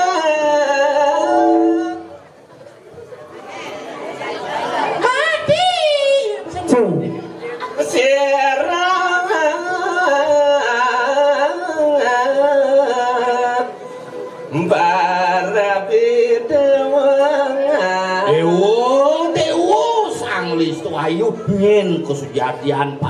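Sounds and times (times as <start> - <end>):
person singing solo: 0.0 - 2.2.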